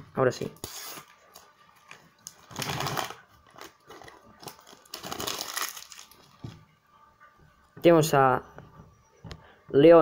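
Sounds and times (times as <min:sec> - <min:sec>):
paper packet tearing: 0:00.5 - 0:06.3.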